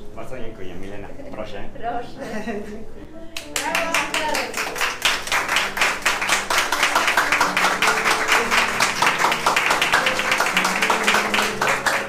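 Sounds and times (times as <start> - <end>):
music with long held notes: 2.3 - 12.0
small group applauding: 3.4 - 12.0.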